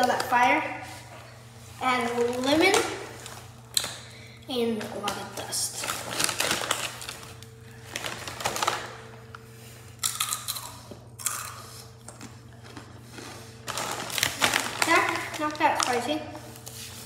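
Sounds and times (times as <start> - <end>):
chips being chewed crunchily: 10.0 - 16.0.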